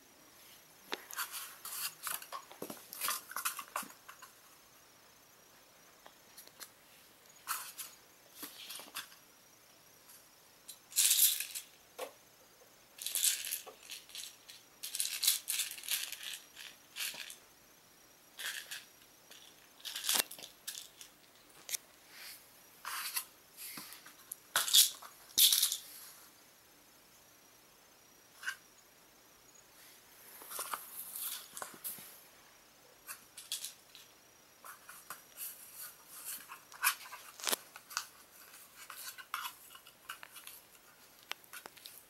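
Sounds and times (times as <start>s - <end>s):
kittens scuffling with toys: 0.9s - 4.4s, 30.2s - 32.2s, 34.6s - 42.0s.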